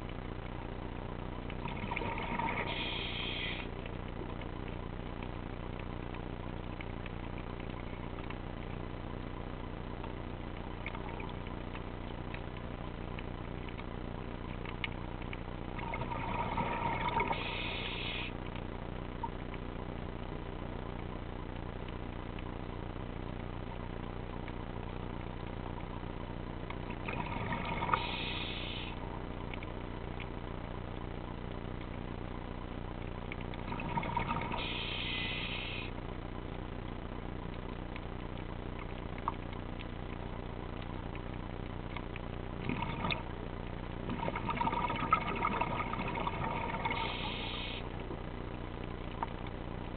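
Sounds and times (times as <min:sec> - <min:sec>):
steady low hum: 0:00.0 - 0:49.9
diver breathing through regulator: 0:02.1 - 0:03.7, 0:34.6 - 0:35.9.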